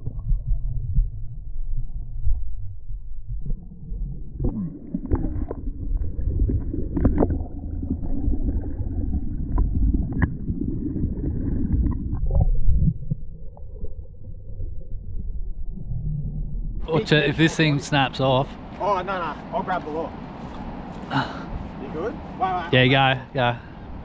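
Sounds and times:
muffled low rumbling: 0.0s - 17.0s.

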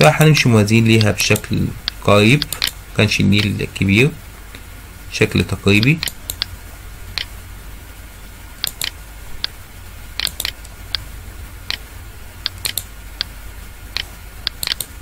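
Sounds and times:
low electrical hum: 0.0s - 15.0s
computer mouse clicking: 1.0s - 2.8s, 5.8s - 6.5s, 8.6s - 9.6s, 10.2s - 11.0s, 12.4s - 13.3s, 14.0s - 15.0s.

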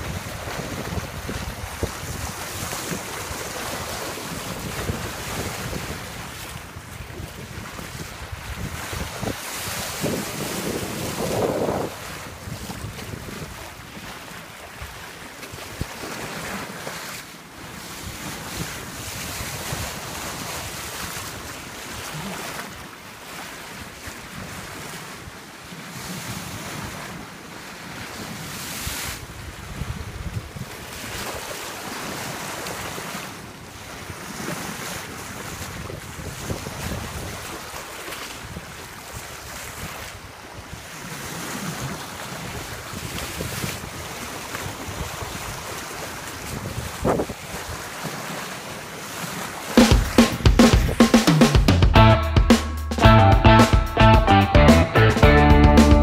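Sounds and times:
wind buffeting microphone: 0.0s - 14.2s, 29.2s - 31.3s, 35.3s - 37.7s, 38.4s - 47.9s, 50.0s - 51.2s
water rushing along a hull: 0.0s - 52.3s.

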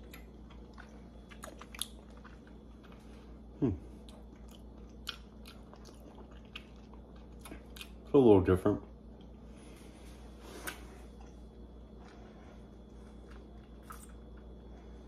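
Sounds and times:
person chewing wet mouth sounds: 0.0s - 8.1s, 10.6s - 15.0s.

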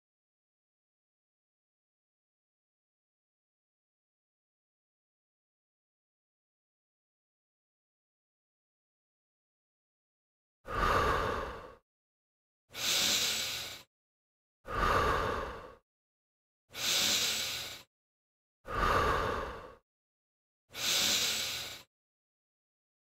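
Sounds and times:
person breathing hard: 10.7s - 11.8s, 12.7s - 13.9s, 14.7s - 15.8s, 16.7s - 17.9s, 18.6s - 19.8s, 20.7s - 21.9s.

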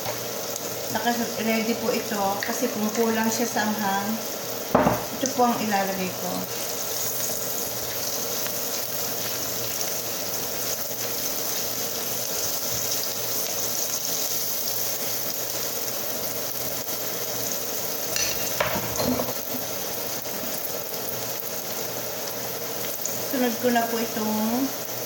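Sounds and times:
garlic sizzling in hot oil: 0.0s - 25.0s
knock: 4.8s - 5.1s.

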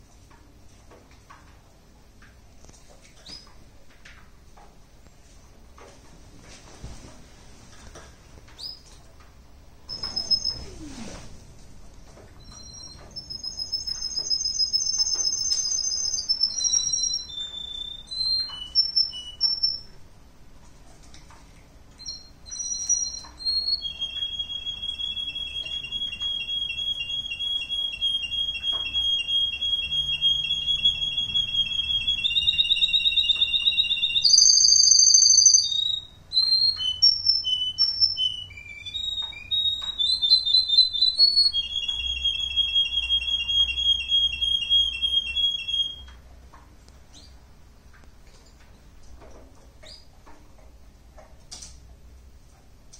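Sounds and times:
canary singing trills: 9.9s - 11.1s, 12.4s - 20.0s, 22.0s - 46.1s.

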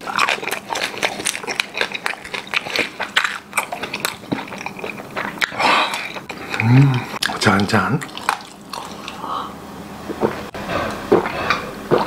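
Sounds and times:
crunchy chewing of crispy pork: 0.0s - 9.5s.

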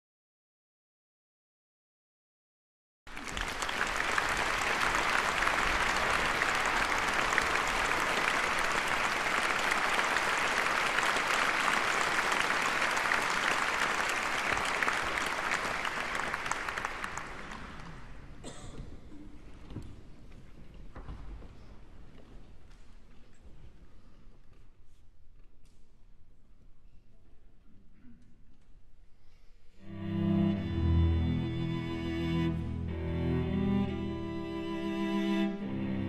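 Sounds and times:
audience applauding: 3.1s - 18.3s.

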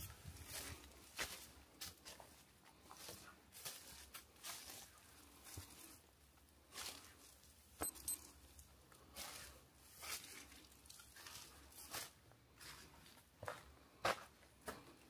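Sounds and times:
footsteps on a forest trail: 0.0s - 6.0s, 9.1s - 15.0s
sharp click: 7.8s - 8.2s.

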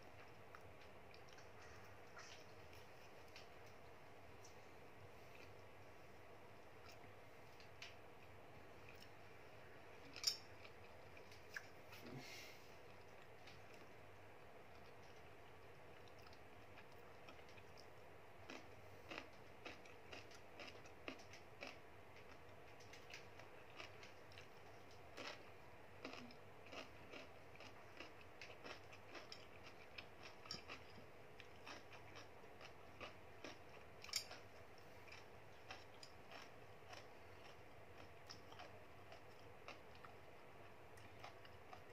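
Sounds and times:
person chewing crisp food: 14.6s - 41.9s.

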